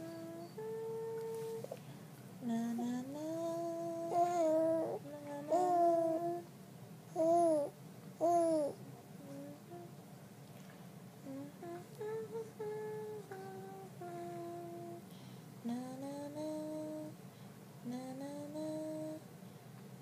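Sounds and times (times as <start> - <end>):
person humming a tune: 0.0 - 1.8, 2.4 - 6.5, 7.2 - 10.0, 11.2 - 17.2, 17.8 - 19.3.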